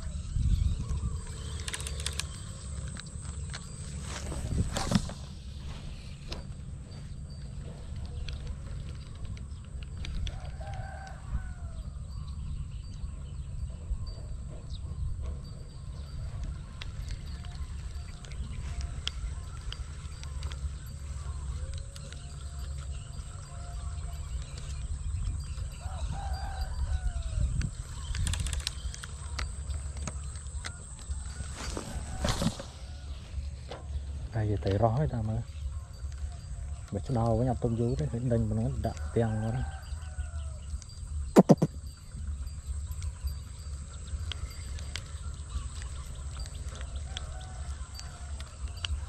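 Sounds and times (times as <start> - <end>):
wind on microphone: 0.0 - 21.5, 24.2 - 33.2
fishing rod and reel clicking: 0.6 - 6.6, 7.3 - 11.2, 16.5 - 25.8, 27.5 - 31.5
rustling through grass: 1.4 - 8.3, 31.0 - 33.6
distant rooster crowing: 10.0 - 12.4, 25.4 - 27.8, 30.6 - 33.6, 37.9 - 40.8, 46.5 - 49.0
short animal call: 41.4 - 41.8.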